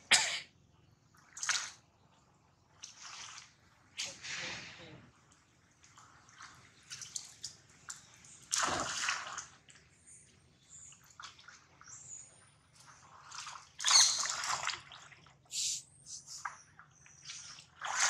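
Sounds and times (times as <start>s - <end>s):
monkeys splashing in water: 5.8s - 9.9s, 12.6s - 15.4s, 16.3s - 18.0s.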